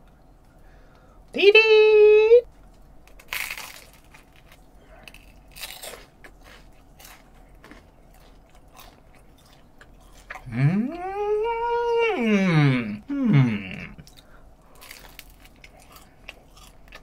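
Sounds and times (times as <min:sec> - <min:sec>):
soft chewing: 0:02.5 - 0:12.2, 0:13.0 - 0:17.0
crunchy bread bite: 0:03.2 - 0:10.5
rising vocal sound: 0:10.4 - 0:14.0.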